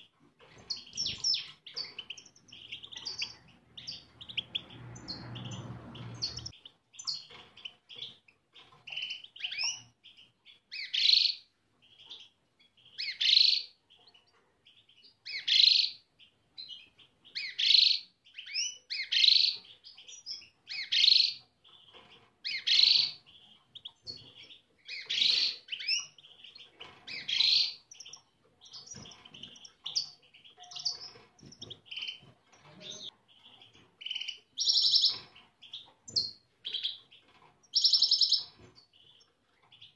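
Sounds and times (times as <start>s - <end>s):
goldfinches calling and twittering: 16.6s - 39.9s.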